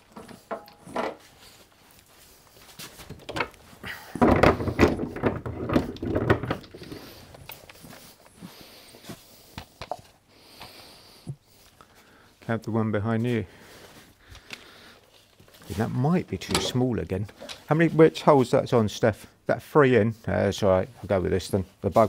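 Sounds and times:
metal parts clattering and knocking: 3.1 - 7.7, 16.4 - 17.7.

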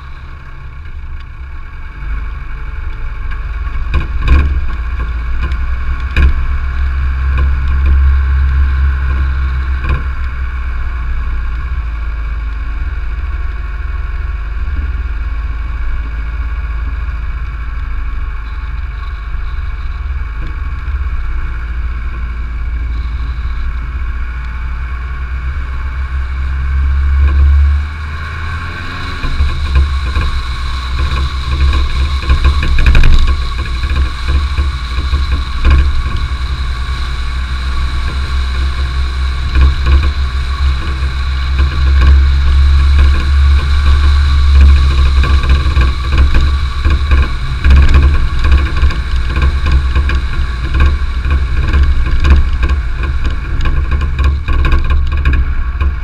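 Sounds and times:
car engine running: 0.0 - 56.0
wind buffeting microphone: 17.2 - 56.0.

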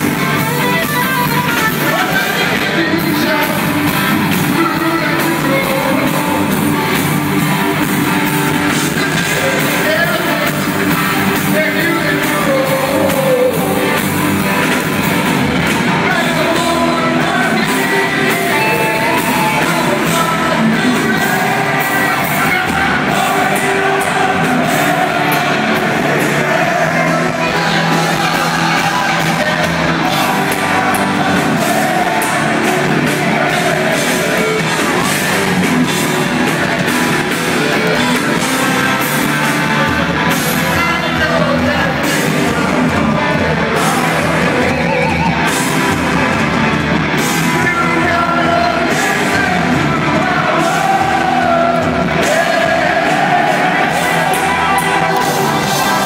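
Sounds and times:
audience yelling: 0.0 - 56.0
drums: 0.0 - 56.0
guitar: 0.0 - 56.0
heavy metal band playing live: 0.0 - 56.0
person singing: 0.1 - 46.4, 47.2 - 56.0.

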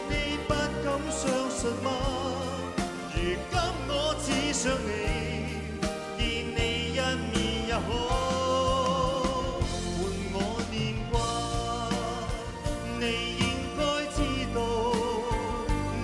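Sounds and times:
band playing: 0.0 - 16.0
man singing pop ballad: 0.0 - 16.0.

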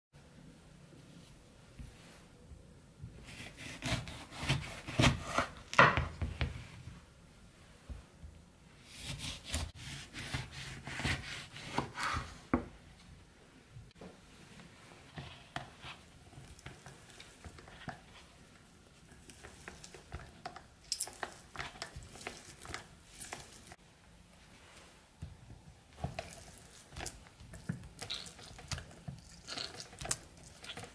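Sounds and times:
knife sawing through oranges: 9.0 - 12.3
citrus juicer wet scrapes and clicks: 26.1 - 30.9.

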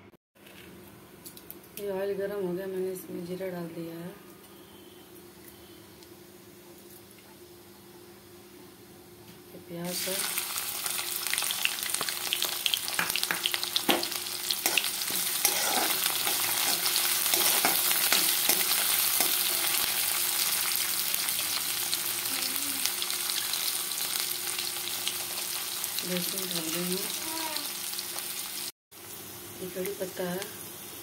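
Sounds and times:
onion sizzling in oil: 9.7 - 31.0
spatula scraping a pan: 14.6 - 19.7.

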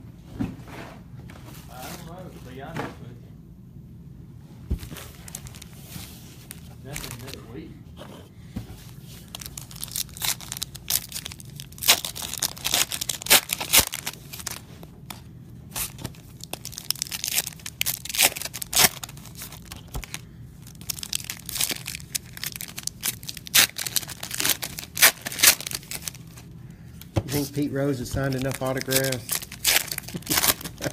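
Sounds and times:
foil wrappers tearing and crinkling: 5.1 - 5.8, 6.4 - 7.5, 9.2 - 26.4, 27.3 - 30.9.

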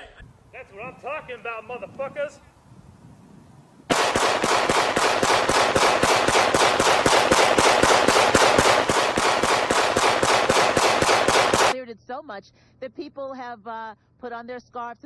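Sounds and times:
firecrackers crackling: 3.9 - 11.8.

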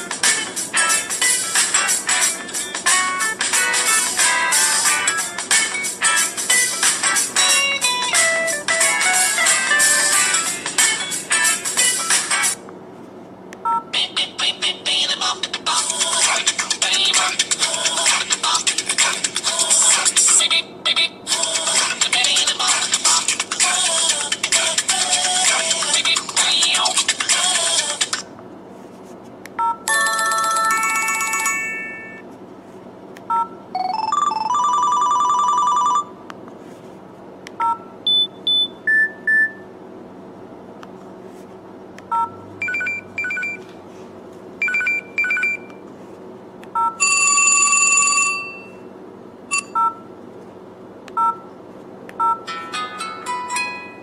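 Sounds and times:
phone ringtone previews: 29.6 - 32.2, 33.8 - 36.1.

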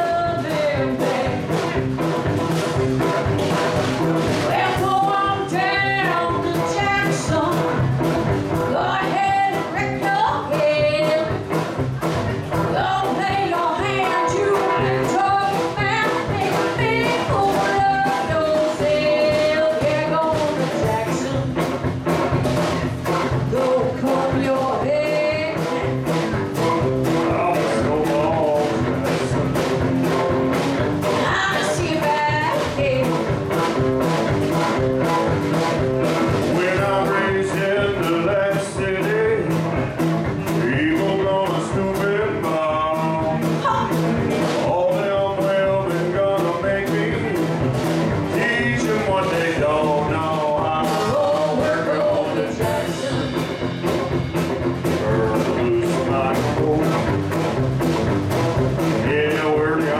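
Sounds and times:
person singing: 0.0 - 1.9, 4.4 - 7.8, 8.6 - 11.6, 12.6 - 21.8, 23.3 - 30.2, 31.0 - 33.2, 36.4 - 39.8, 40.5 - 47.6, 48.2 - 53.9, 54.8 - 57.2, 59.0 - 59.9
drum kit beat: 0.0 - 59.9
electric guitar: 0.0 - 59.9.

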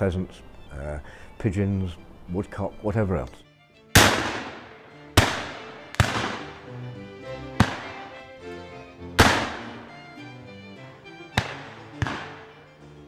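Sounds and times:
background music: 0.0 - 13.0
shotgun shots echoing: 3.9 - 6.7, 7.4 - 8.2, 9.2 - 10.0, 11.3 - 12.7.

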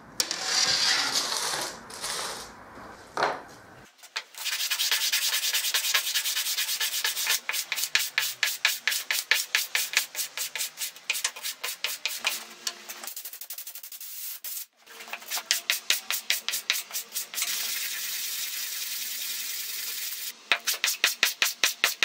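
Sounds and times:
wood rubbing on sandpaper: 4.2 - 12.4, 13.1 - 22.0.

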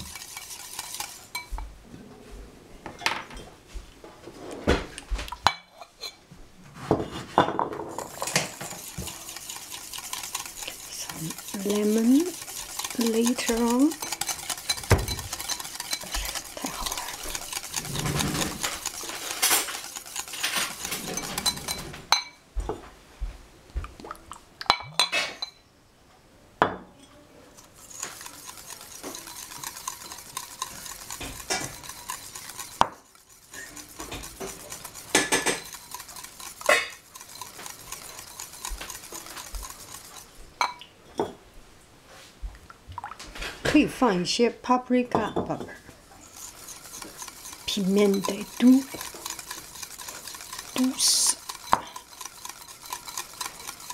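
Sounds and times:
utensil scraping a bowl: 0.0 - 1.8, 6.8 - 22.2, 27.5 - 40.6, 45.2 - 53.9.

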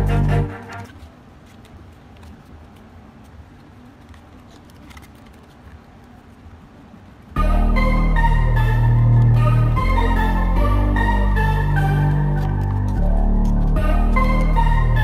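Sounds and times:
background music: 0.0 - 0.9, 7.4 - 15.0.

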